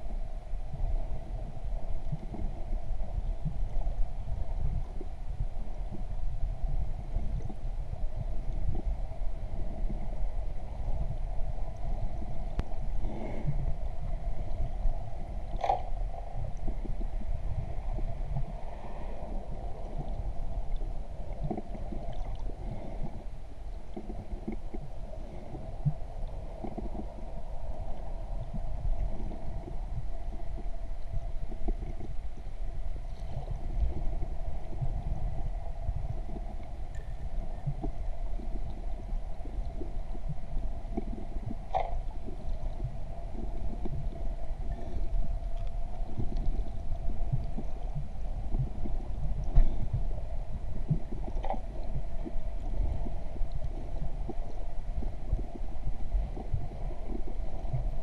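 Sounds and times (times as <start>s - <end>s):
steady hum: 0.0s - 58.0s
underwater rumble and gurgling: 0.0s - 58.0s.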